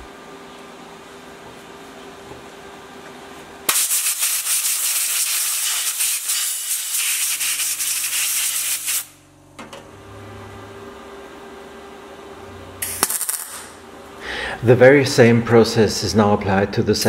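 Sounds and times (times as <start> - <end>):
sanding steel: 3.7 - 9.1.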